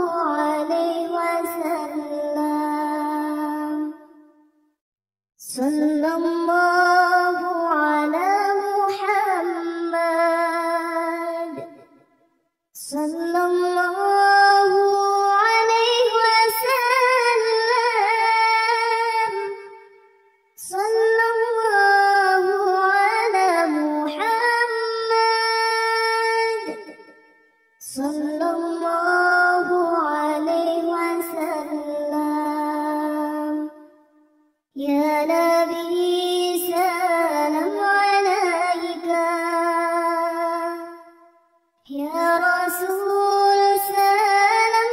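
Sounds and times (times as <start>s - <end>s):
person singing devotional chant: 0.0s - 4.4s, 5.4s - 12.0s, 12.8s - 27.2s, 27.8s - 34.2s, 34.8s - 41.3s, 41.9s - 44.9s.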